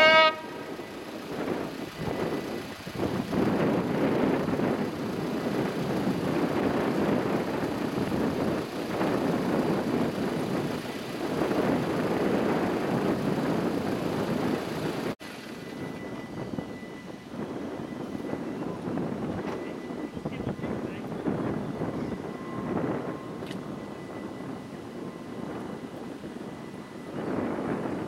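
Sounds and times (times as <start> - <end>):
railcar running: 0.0 - 28.0
wind buffeting microphone: 0.0 - 28.0
faint steady high tone: 15.5 - 28.0.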